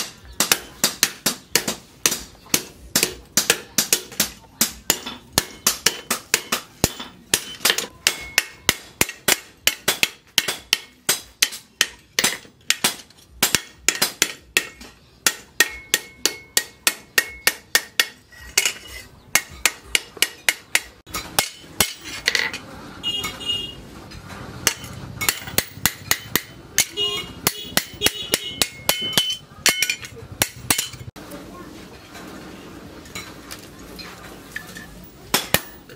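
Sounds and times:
hammer blows on metal anvil: 0:24.6 - 0:31.1.

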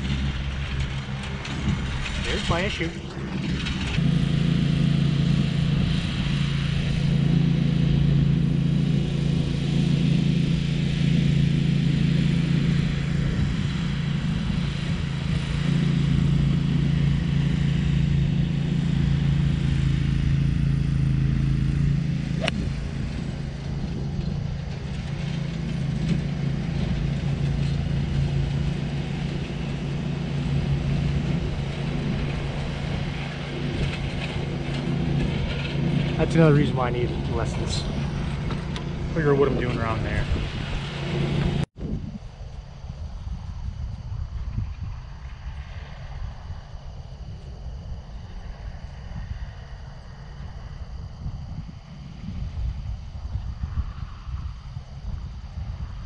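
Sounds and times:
riding mower engine drone: 0:00.0 - 0:56.0
golf club striking ball: 0:22.4 - 0:24.1.

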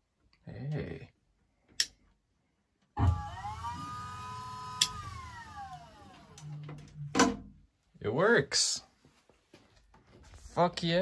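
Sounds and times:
electric pump motor whine: 0:03.0 - 0:07.1
click: 0:04.8 - 0:05.0.

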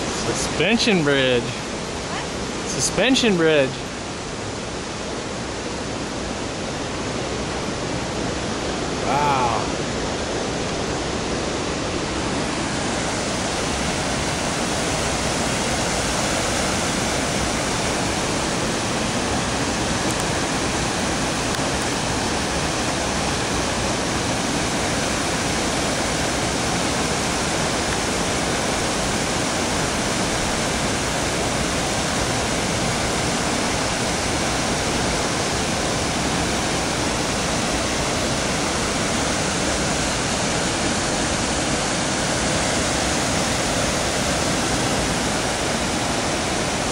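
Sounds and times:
river rapids rushing: 0:00.0 - 0:46.9
brief voice: 0:09.0 - 0:09.8.

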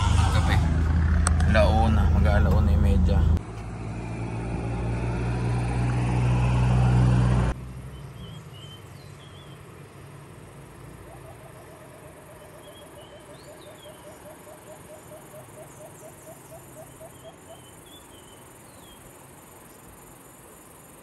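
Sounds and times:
low steady rumble: 0:00.0 - 0:03.6
high bird chirps: 0:07.9 - 0:09.7, 0:10.9 - 0:19.2.

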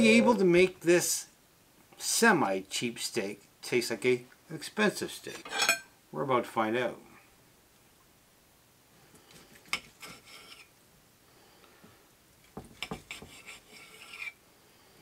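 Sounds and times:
knife scraping on plate: 0:09.8 - 0:10.7, 0:12.8 - 0:14.4.

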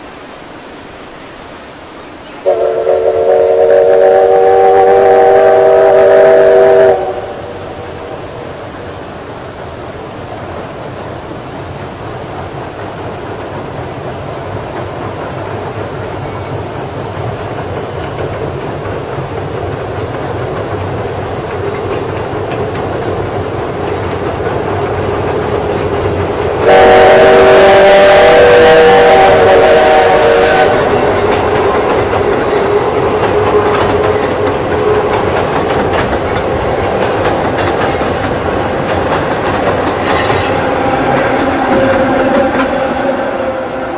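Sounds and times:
train rumbling across steel bridge: 0:00.0 - 0:43.9
steam locomotive chime whistle: 0:02.4 - 0:08.1, 0:26.5 - 0:36.4, 0:39.8 - 0:43.9.

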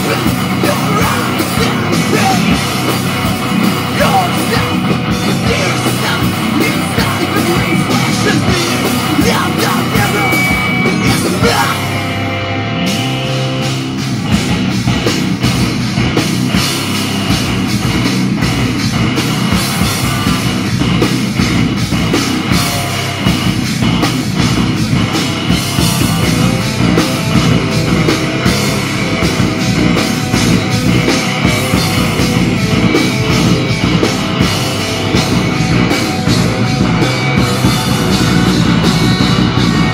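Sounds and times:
metal band playing live: 0:00.0 - 0:39.9.

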